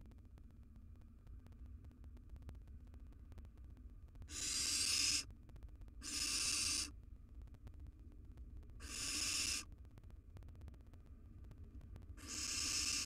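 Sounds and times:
owl chicks screeching: 4.3s - 5.2s, 6.0s - 6.9s, 8.8s - 9.7s, 12.2s - 13.0s.

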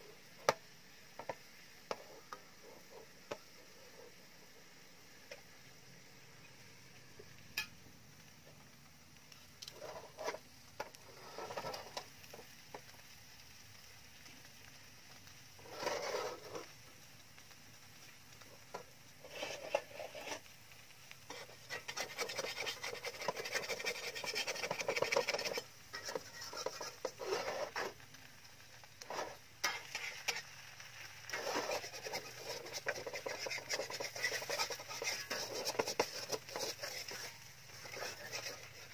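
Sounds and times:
batter sizzling: 0.0s - 38.9s
metal spatula scraping in wok: 9.7s - 12.1s, 15.6s - 16.7s, 18.7s - 20.5s, 21.3s - 28.1s, 28.9s - 38.9s.

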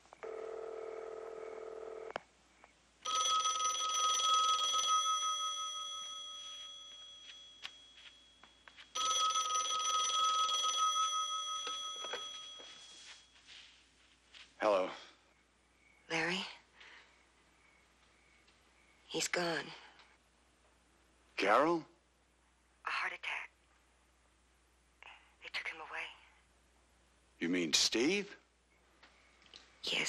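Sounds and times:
telephone bell ringing: 0.2s - 2.1s, 3.0s - 13.5s.

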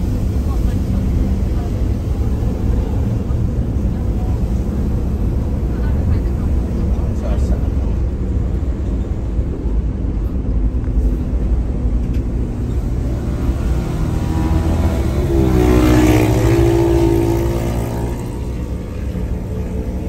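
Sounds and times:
vehicle engine rumble: 0.0s - 20.0s
engine note rising in pitch: 13.0s - 20.0s.

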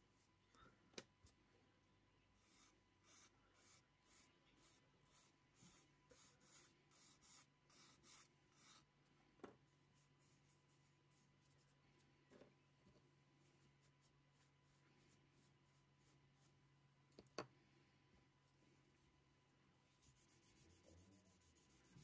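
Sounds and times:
sanding stick rasping on plastic: 20.1s - 22.0s.

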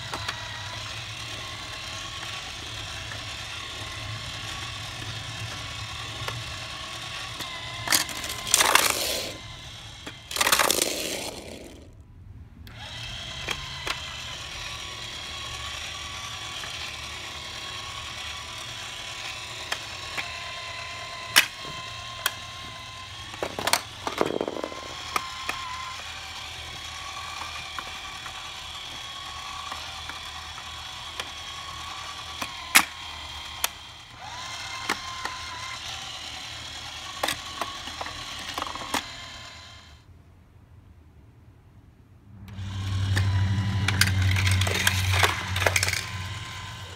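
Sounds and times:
plastic toy clicks and knocks: 0.0s - 9.4s, 10.0s - 11.9s, 12.7s - 18.6s, 21.2s - 22.6s, 23.2s - 25.9s, 26.7s - 39.3s, 42.5s - 46.9s
low background hum: 0.0s - 46.9s
rattling rush: 10.3s - 11.9s, 42.3s - 46.9s.

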